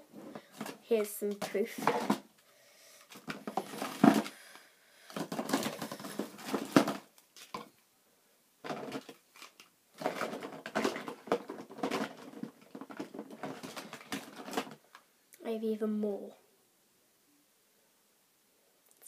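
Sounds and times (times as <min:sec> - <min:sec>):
plastic toys rattling and rustling: 0:00.3 - 0:02.4, 0:03.0 - 0:07.7, 0:08.6 - 0:15.0.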